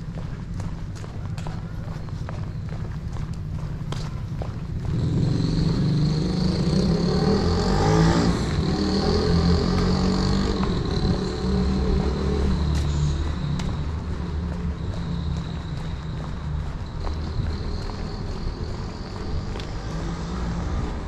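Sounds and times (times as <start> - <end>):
vehicle driving past: 4.4 - 21.0.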